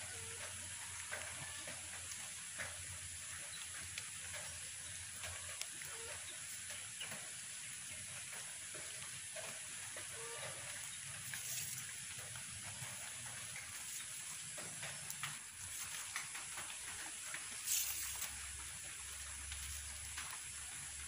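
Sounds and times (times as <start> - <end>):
high outdoor hiss: 0.0 - 21.0
distant animal calls: 5.0 - 7.2, 8.3 - 18.3
wire twisting around bamboo: 10.1 - 20.5.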